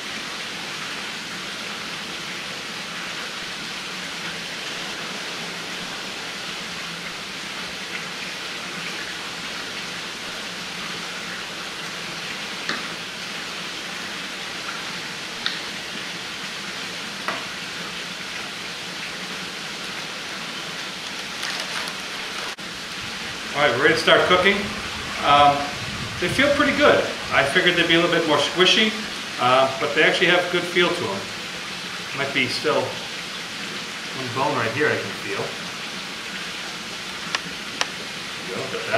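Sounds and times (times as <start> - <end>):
steady background hiss: 0.0 - 38.9.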